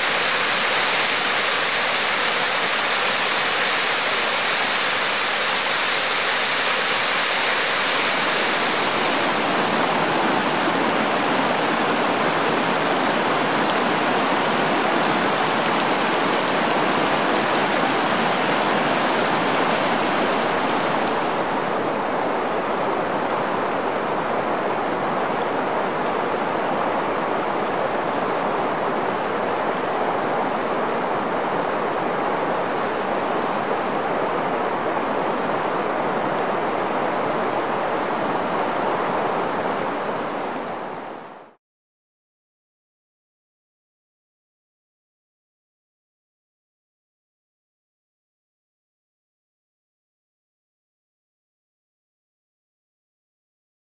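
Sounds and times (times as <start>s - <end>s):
rushing water: 0.0s - 41.6s.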